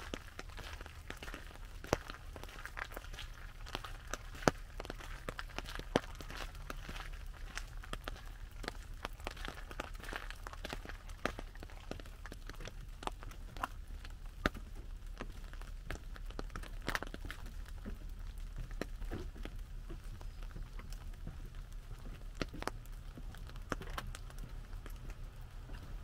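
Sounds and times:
raindrops tapping on umbrella: 0:00.0 - 0:26.0.

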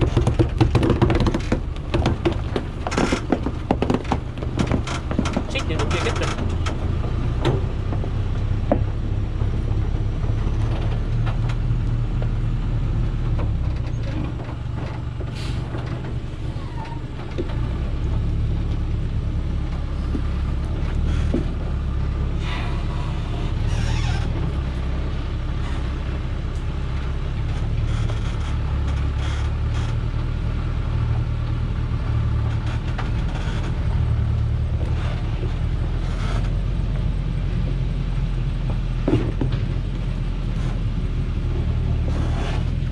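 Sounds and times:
truck diesel engine rumbling: 0:00.0 - 0:42.9
short clatters or hisses: 0:15.3 - 0:15.7.

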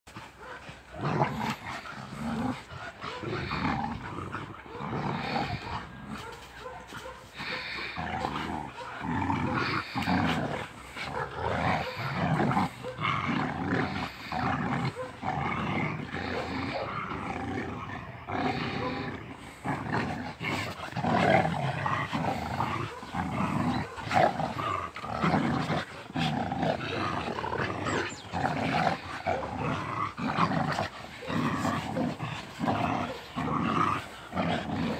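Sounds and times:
dogs growling in play: 0:00.1 - 0:34.9.

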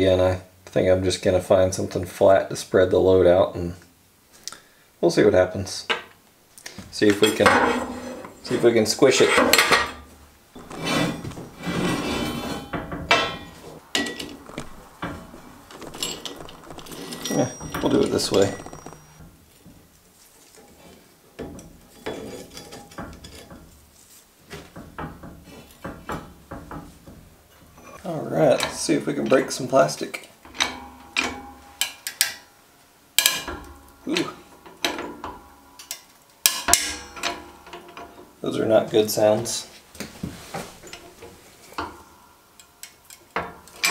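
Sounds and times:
metal parts scraping on steel: 0:07.2 - 0:10.0, 0:10.6 - 0:19.2
sharp metal clanks: 0:10.6 - 0:19.2.

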